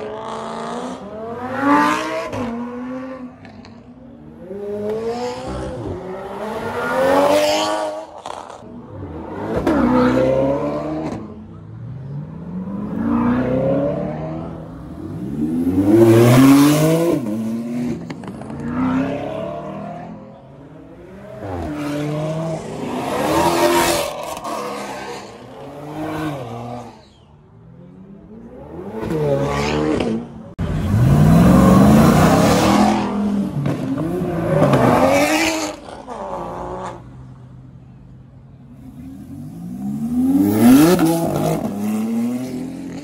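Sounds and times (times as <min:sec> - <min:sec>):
sports cars accelerating past: 0:27.7 - 0:37.4, 0:38.7 - 0:43.0.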